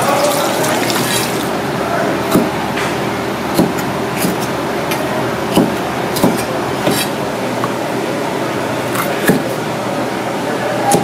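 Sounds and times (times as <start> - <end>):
loud steady background rush: 0.0 - 11.0
knife chopping on plastic board: 2.3 - 2.6, 3.5 - 7.8, 8.9 - 9.5.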